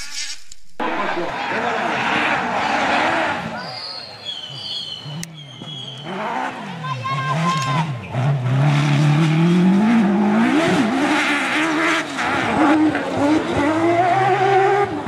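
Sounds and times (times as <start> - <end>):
rally car engine revving: 0.8 - 3.7, 4.4 - 15.0.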